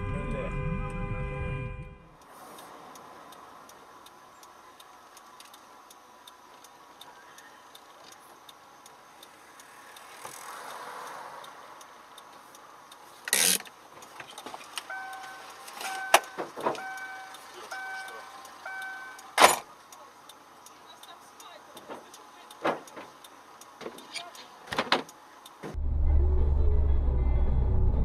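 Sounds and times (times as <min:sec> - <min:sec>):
light ticking: 0:02.1 - 0:25.7
electronic car beeps: 0:14.9 - 0:19.4.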